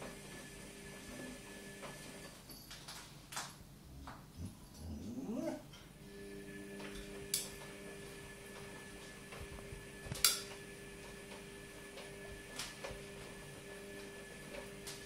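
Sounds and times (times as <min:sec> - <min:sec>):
steady low hum: 0:03.6 - 0:08.5.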